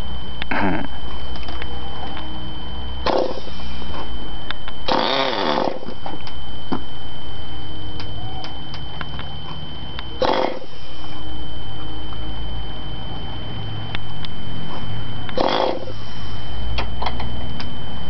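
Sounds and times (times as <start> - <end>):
electric starter whirring: 3.0 - 6.8, 10.0 - 11.3, 15.2 - 17.7.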